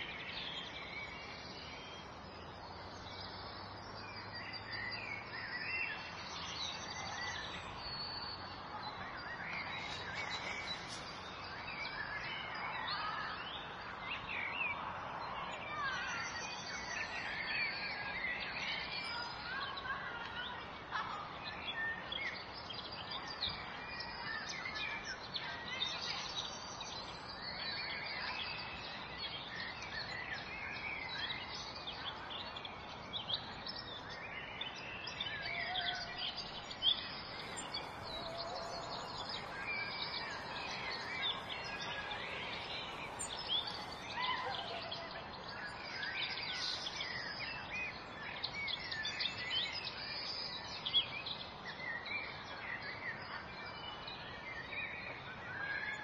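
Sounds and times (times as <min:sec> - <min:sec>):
small birds chirping: 0:00.0 - 0:56.0
steady background hiss: 0:21.7 - 0:49.2.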